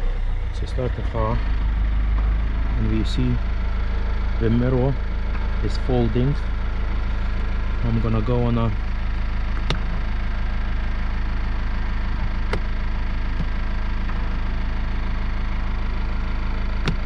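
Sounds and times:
car engine idling: 0:00.0 - 0:17.0.

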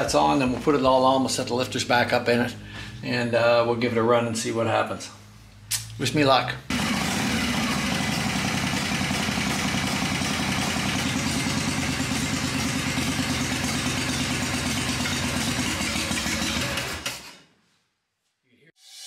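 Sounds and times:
motorcycle engine idling: 0:06.7 - 0:16.9
engine ticking: 0:06.7 - 0:17.1.

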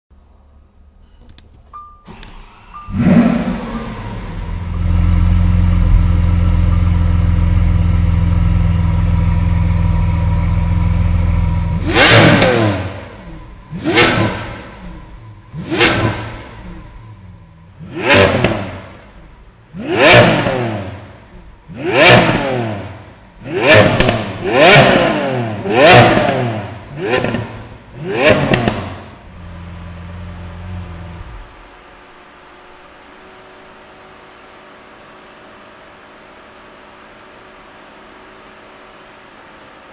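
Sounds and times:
car engine revving: 0:02.4 - 0:31.7.

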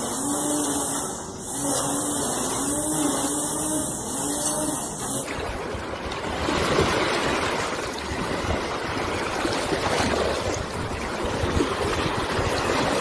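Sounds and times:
sea surf washing ashore: 0:05.0 - 0:13.0.

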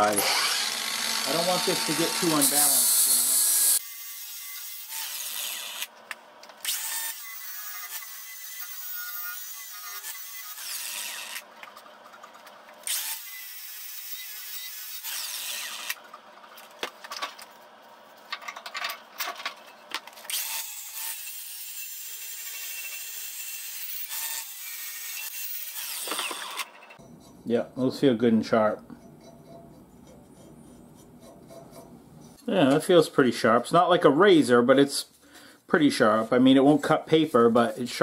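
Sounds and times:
angle grinder grinding steel: 0:00.0 - 0:05.9, 0:29.0 - 0:32.4.

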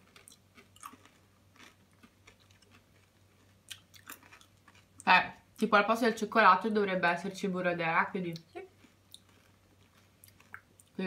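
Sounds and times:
candy being chewed: 0:00.0 - 0:05.6, 0:08.3 - 0:11.0.

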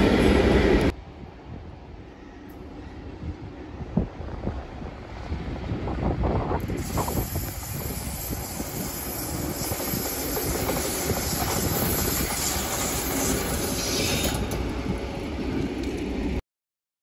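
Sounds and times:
wheels on rails: 0:06.6 - 0:16.4.

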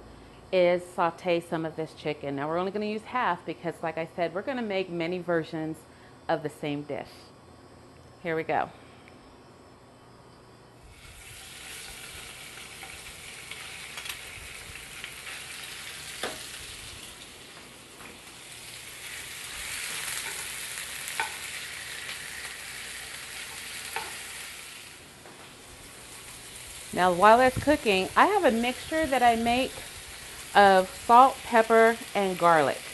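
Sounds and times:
chicken sizzling in frying pan: 0:10.9 - 0:32.9.

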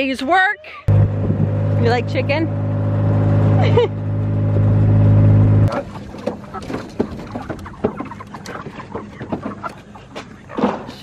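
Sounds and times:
diesel engine running: 0:00.9 - 0:05.9
plastic crates knocking and clattering: 0:05.7 - 0:11.0.

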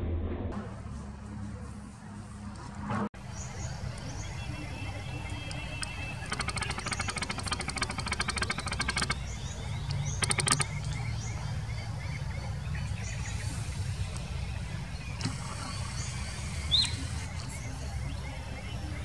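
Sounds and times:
steady low rumble: 0:00.0 - 0:02.6
rapid rattling bird call: 0:03.2 - 0:11.4
bird chirps: 0:03.2 - 0:19.0.

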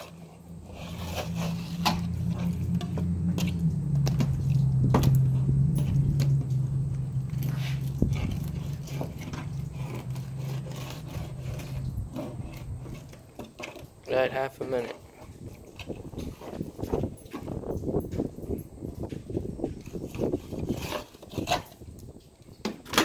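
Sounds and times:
knife and fish scraping plastic lid: 0:00.0 - 0:02.6, 0:07.4 - 0:13.9, 0:19.9 - 0:21.8
low engine hum: 0:00.0 - 0:14.1.

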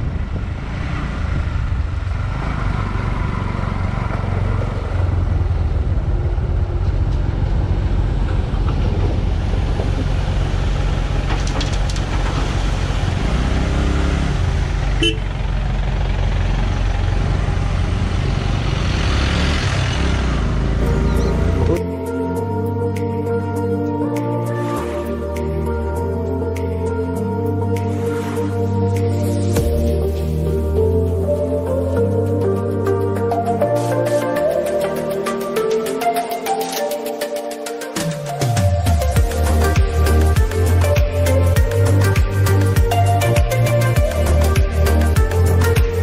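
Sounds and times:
motorcycle engine rumble: 0:00.0 - 0:22.5
road and wind noise: 0:00.0 - 0:46.0.

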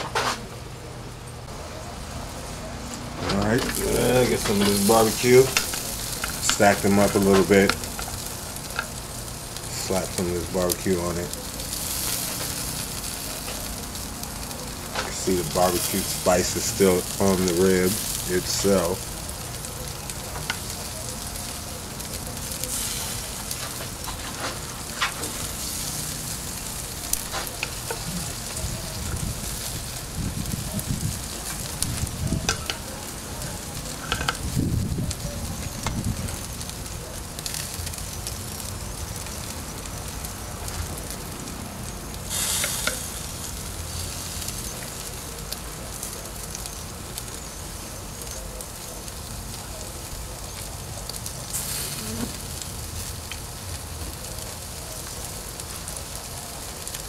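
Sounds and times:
low rumbles: 0:00.6 - 0:11.4, 0:23.2 - 0:37.4
ribs sizzling on a grill: 0:00.8 - 0:57.0.

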